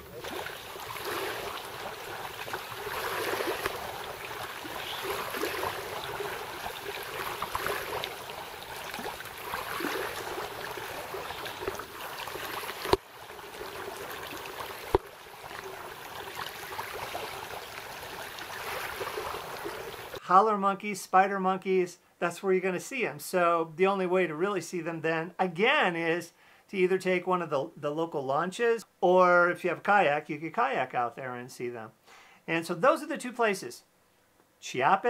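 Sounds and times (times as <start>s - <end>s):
rushing hiss of water: 0.0s - 20.2s.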